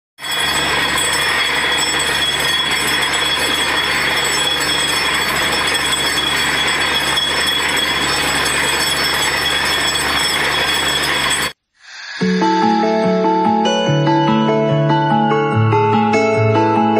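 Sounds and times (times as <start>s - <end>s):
drilling rig machine din: 0.2s - 11.6s.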